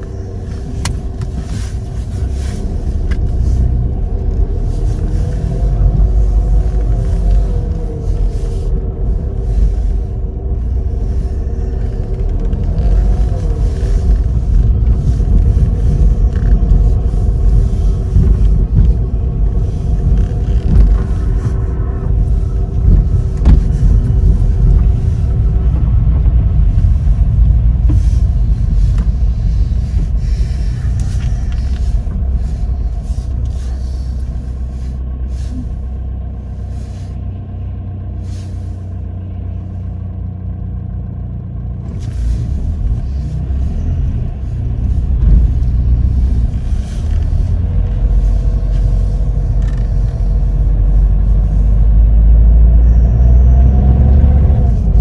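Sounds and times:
engine and road rumble: 0:00.0 - 0:55.0
tyres hissing on wet road: 0:26.8 - 0:37.3, 0:38.2 - 0:39.0.

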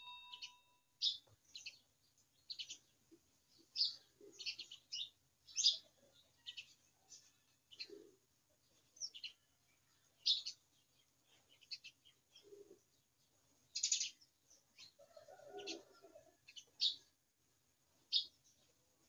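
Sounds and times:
small birds chirping: 0:00.0 - 0:17.2, 0:17.8 - 0:19.0.

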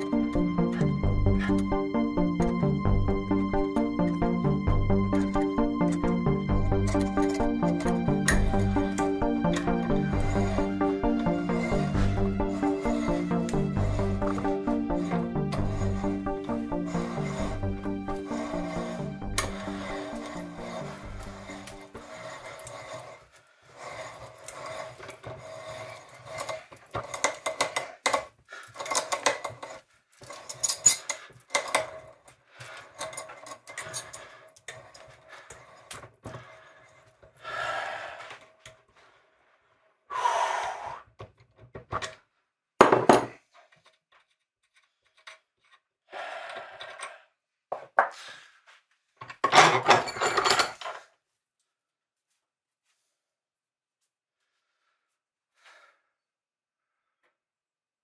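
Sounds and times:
tap wrench scraping metal threads: 0:11.2 - 0:32.1, 0:32.9 - 0:37.2.

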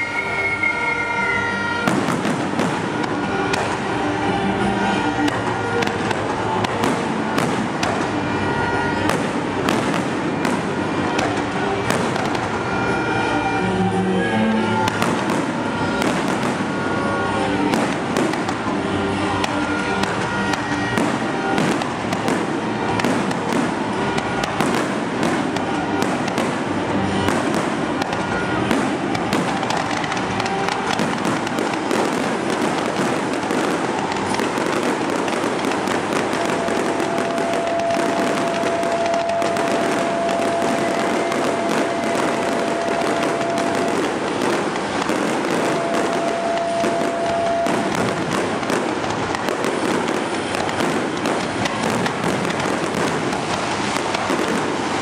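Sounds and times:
steady high tone: 0:00.0 - 0:01.8, 0:28.3 - 0:51.1
fireworks bangs and crackles: 0:00.0 - 0:55.0
music: 0:00.0 - 0:55.0.

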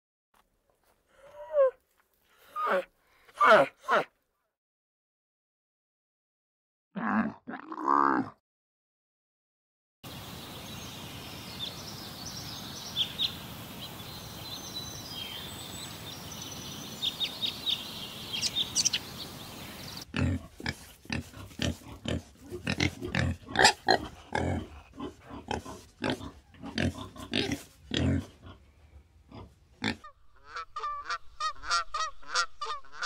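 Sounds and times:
pigs grunting: 0:07.0 - 0:08.4, 0:20.0 - 0:28.7, 0:29.3 - 0:30.2
steady outdoor hiss: 0:10.1 - 0:33.0.

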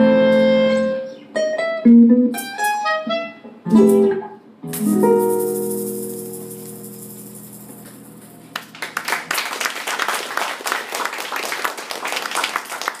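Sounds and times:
audience applause: 0:08.5 - 0:13.0.

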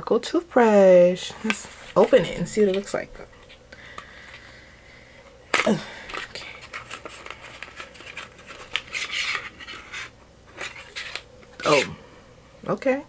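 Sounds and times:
packaging crinkling and tearing: 0:05.5 - 0:11.9.

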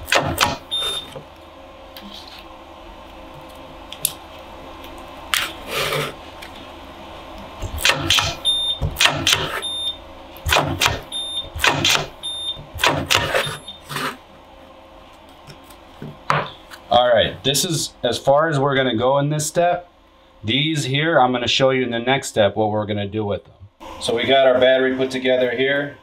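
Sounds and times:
spot welder snapping: 0:00.0 - 0:01.2, 0:07.4 - 0:09.6, 0:10.4 - 0:13.6.

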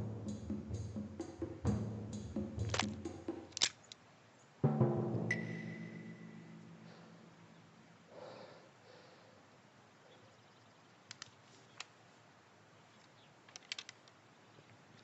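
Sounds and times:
soft rustle: 0:10.0 - 0:15.0
faint sharp clicks: 0:11.0 - 0:12.0, 0:12.9 - 0:15.0.

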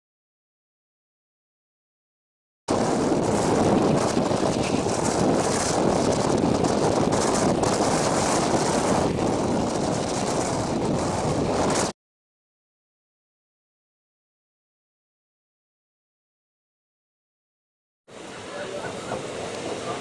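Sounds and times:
train rumbling at speed: 0:02.7 - 0:11.9, 0:18.1 - 0:20.0
wind rushing on microphone: 0:02.7 - 0:12.0.

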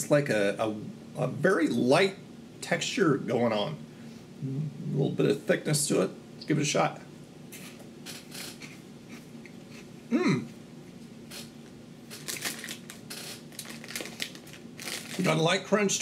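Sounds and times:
crunching puffed corn snack: 0:12.1 - 0:15.4.

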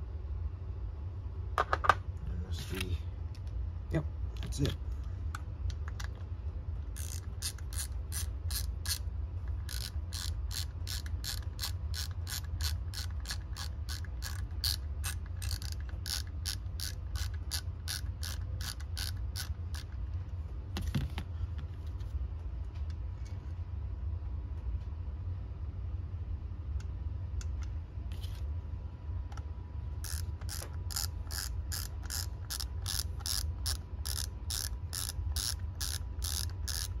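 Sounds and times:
ratchet clicking: 0:07.0 - 0:20.0, 0:30.0 - 0:37.0.

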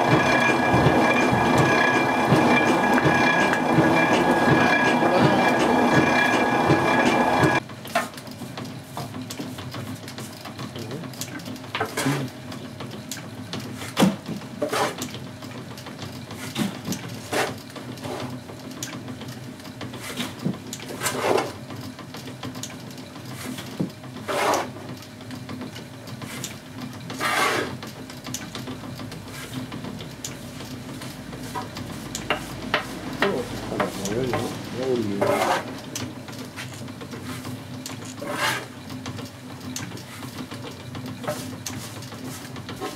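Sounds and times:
loud clattering: 0:00.0 - 0:07.6
metal shovel scraping iron pan: 0:27.2 - 0:27.7, 0:35.2 - 0:35.7, 0:38.2 - 0:38.7.

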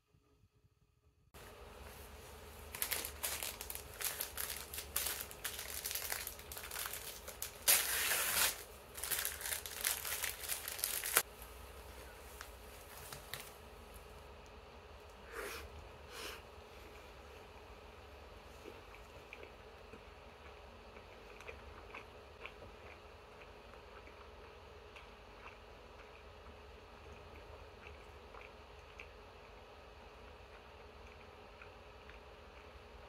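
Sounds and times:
plastic wrapper crinkling and tearing: 0:02.7 - 0:11.3.

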